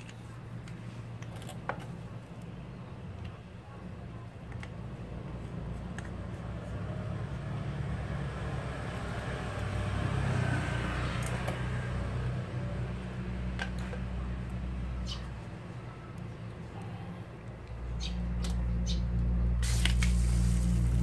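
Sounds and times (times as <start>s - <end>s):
pressure washer motor humming: 19.6s - 21.0s.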